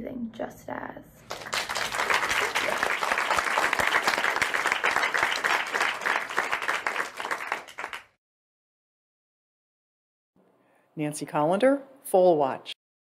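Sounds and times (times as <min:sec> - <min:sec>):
crowd applauding: 0:01.3 - 0:08.2.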